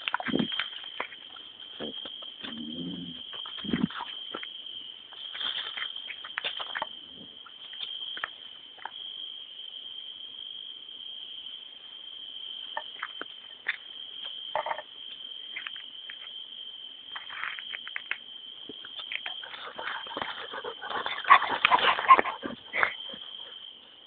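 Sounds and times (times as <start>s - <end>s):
crickets chirring: 0.0s - 24.0s.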